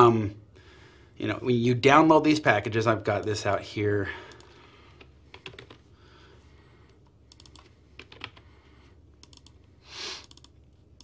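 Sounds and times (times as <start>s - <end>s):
keyboard and mouse clicks: 5.3s - 5.8s, 7.3s - 8.4s, 9.2s - 11.0s.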